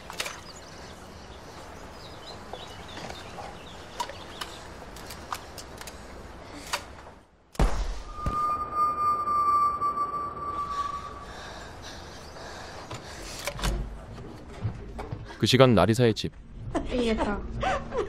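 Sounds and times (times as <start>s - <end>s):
flare pistol bang: 7.6s - 8.4s.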